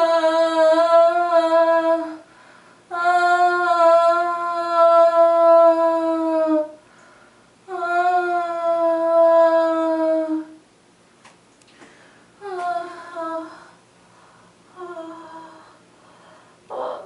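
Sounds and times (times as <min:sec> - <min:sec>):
long held vocal notes: 0:00.0 - 0:02.3, 0:02.9 - 0:06.8, 0:07.7 - 0:10.6, 0:12.4 - 0:13.8, 0:14.7 - 0:15.9, 0:16.7 - 0:17.0.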